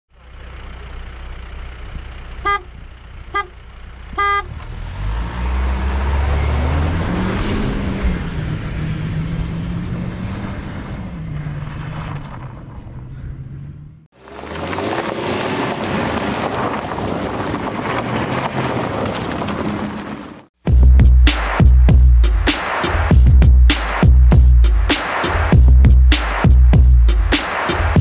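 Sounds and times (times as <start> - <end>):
car engine revving: 1.4 - 28.0
car horn toots: 2.4 - 4.6.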